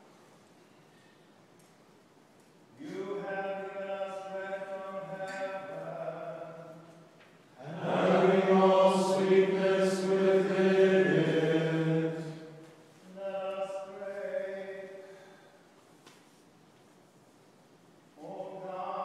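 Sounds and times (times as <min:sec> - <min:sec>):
men chanting a hymn: 0:02.8 - 0:15.5, 0:18.2 - 0:19.0.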